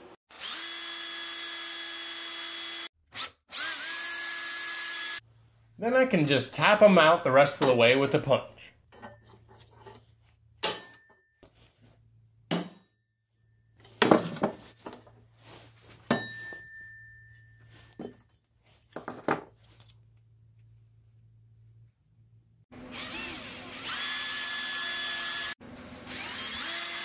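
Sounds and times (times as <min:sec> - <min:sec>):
hammer striking steel punch: 0:10.6 - 0:11.2, 0:12.5 - 0:12.9, 0:16.1 - 0:17.0
high metallic ring: 0:16.1 - 0:18.0.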